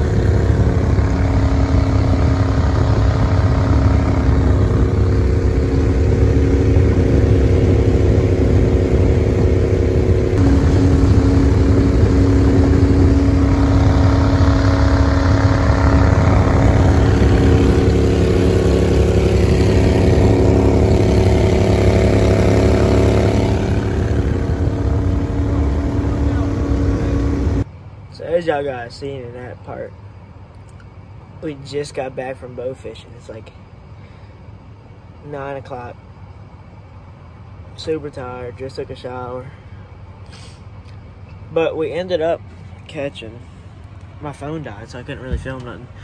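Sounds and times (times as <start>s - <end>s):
boat motor running: 0.0s - 27.6s.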